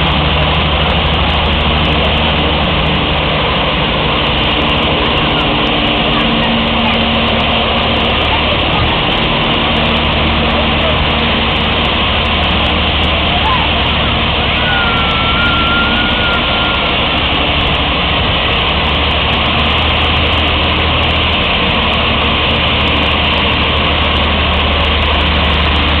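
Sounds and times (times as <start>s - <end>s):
heavy truck engine running: 0.0s - 26.0s
thin whistle-like tone: 14.5s - 17.1s.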